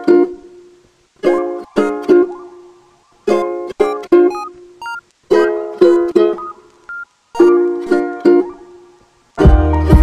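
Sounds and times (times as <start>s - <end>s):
plucked string chords: 0.0s - 6.8s, 7.4s - 10.0s.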